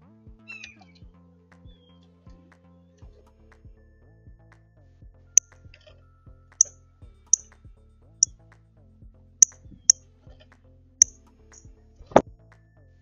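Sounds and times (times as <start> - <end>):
quiet background music: 0.0 - 13.0.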